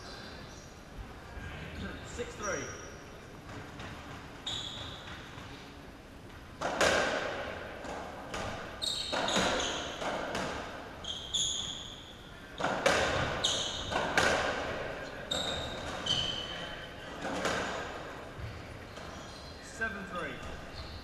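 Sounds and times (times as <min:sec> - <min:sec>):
shoes squeaking on court floor: 0:02.2 - 0:05.8, 0:07.8 - 0:21.0
ball cracking off racket and walls: 0:06.6 - 0:10.8, 0:12.6 - 0:14.9.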